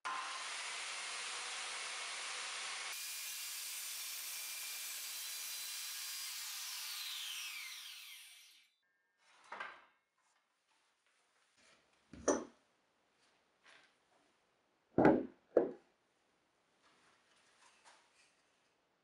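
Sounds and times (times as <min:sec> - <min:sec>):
circular saw cutting plywood: 0:00.0 - 0:08.7
saw motor winding down: 0:00.1 - 0:04.3, 0:05.0 - 0:08.7.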